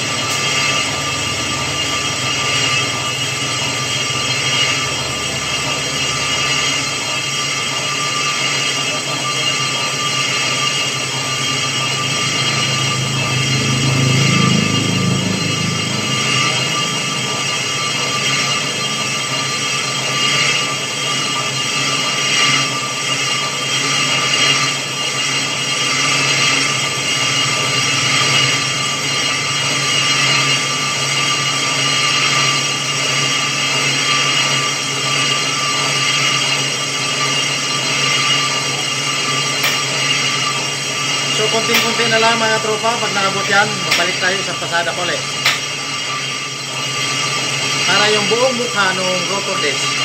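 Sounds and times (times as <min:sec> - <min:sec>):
high ringing tones: 0:00.0 - 0:22.8, 0:38.0 - 0:50.0
metal lathe running: 0:00.0 - 0:50.0.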